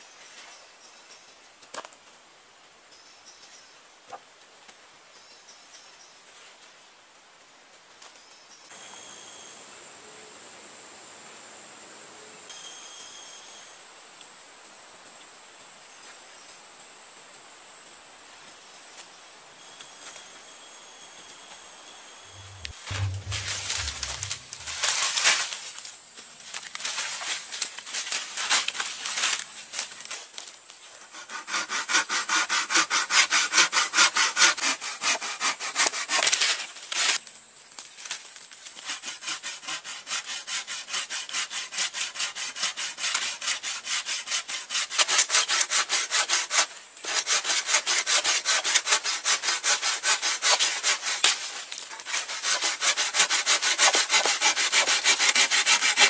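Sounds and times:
pruning saw cutting branch: 0:22.4 - 0:25.4.

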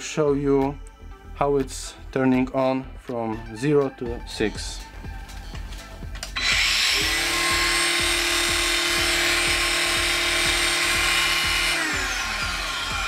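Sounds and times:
angle grinder whining: 0:06.2 - 0:13.0
grinder winding down: 0:06.4 - 0:13.0.

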